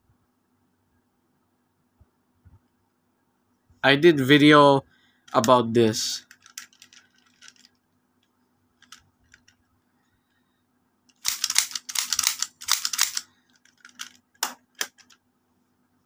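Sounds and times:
toy pistol clicks: 11.2 - 15.1.

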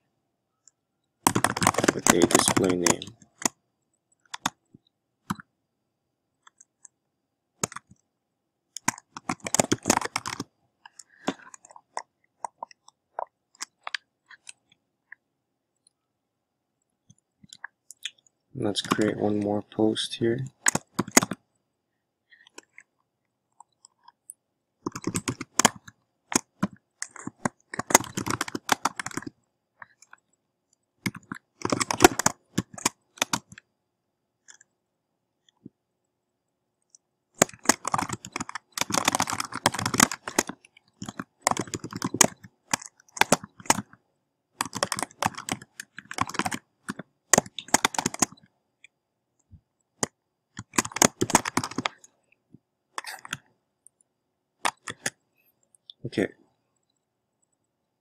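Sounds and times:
computer keyboard typing: 1.2 - 4.7, 7.6 - 8.0, 8.8 - 14.8, 20.5 - 21.4, 24.8 - 30.3, 31.0 - 33.6, 37.4 - 44.0, 44.6 - 48.5, 50.0 - 52.1, 54.6 - 55.2.

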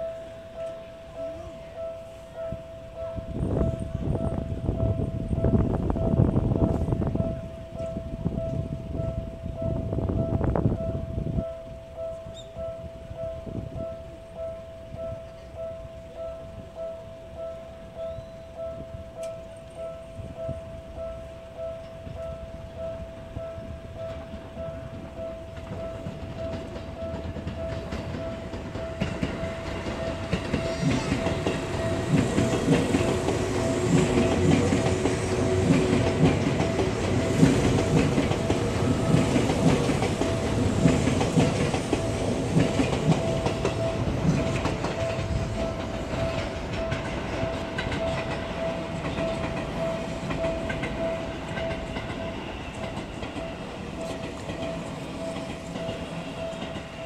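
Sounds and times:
level crossing warning bell: 0.0 - 57.0
train wheels clacking on rail joints: 24.0 - 57.0.

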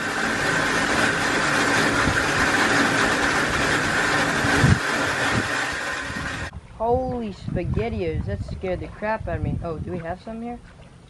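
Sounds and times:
engine-like drone: 0.0 - 6.6.

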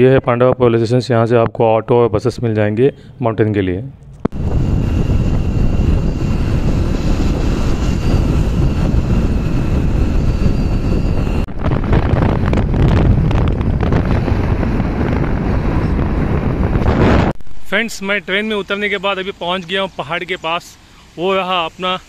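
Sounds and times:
wind buffeting microphone: 4.1 - 17.9
thin high whine: 4.2 - 22.0.

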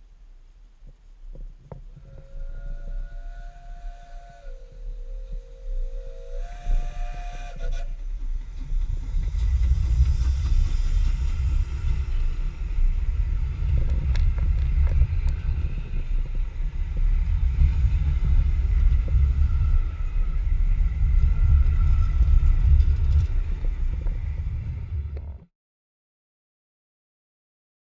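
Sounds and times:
train wheels rumbling on rails: 1.8 - 25.5
steam locomotive whistle: 2.2 - 8.3.

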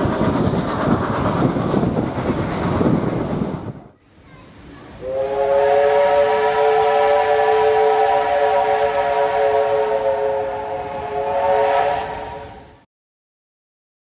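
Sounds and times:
hiss of escaping steam: 0.0 - 12.8
steam locomotive whistle: 5.0 - 12.8.

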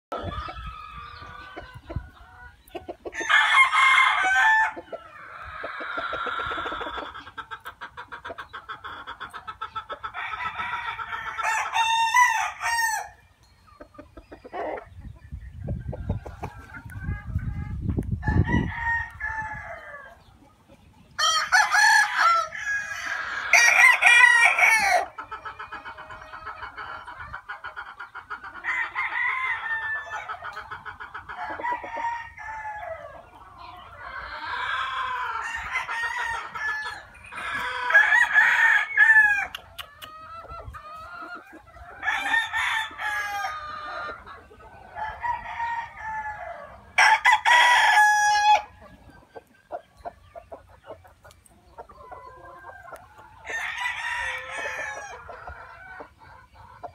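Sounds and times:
roosters crowing: 0.1 - 13.4, 16.2 - 20.3, 21.2 - 56.9.

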